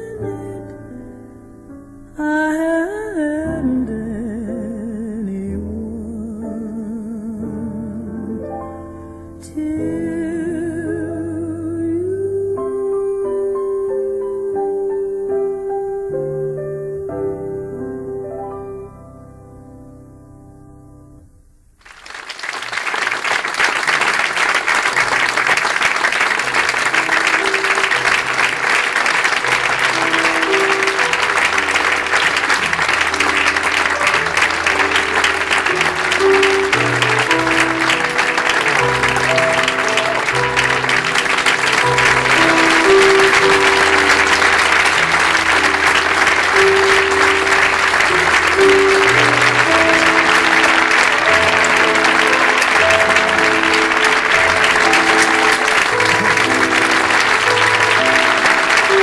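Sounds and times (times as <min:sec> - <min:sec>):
audience applauding: 0:21.8 - 0:59.0.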